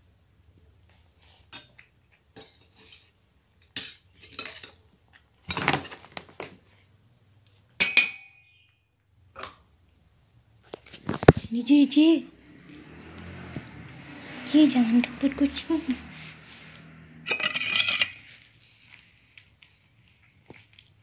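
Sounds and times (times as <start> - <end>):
food dish clinking and scraping: 3.7 - 4.8, 17.2 - 18.4.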